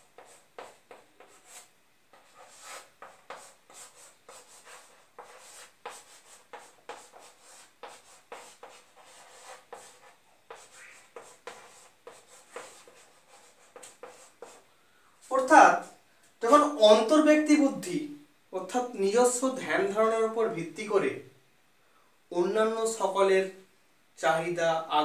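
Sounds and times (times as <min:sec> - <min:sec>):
chalk scratching on a blackboard: 0:00.0 - 0:14.7.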